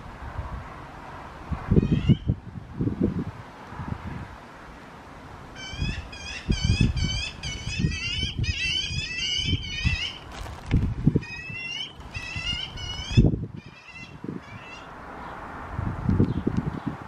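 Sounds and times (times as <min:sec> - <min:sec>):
young magpies begging calls: 0:01.8 - 0:02.3, 0:05.6 - 0:10.3, 0:11.2 - 0:15.4
wings fluttering: 0:09.8 - 0:13.3.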